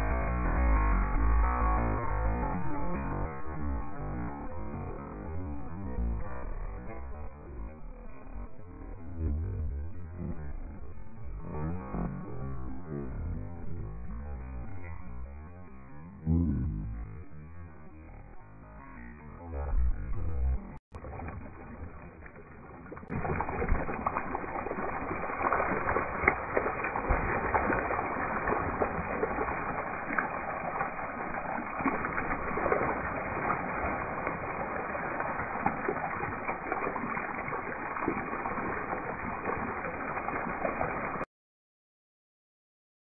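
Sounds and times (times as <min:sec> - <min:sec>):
water splashing and dripping: 0:20.9 - 0:41.3.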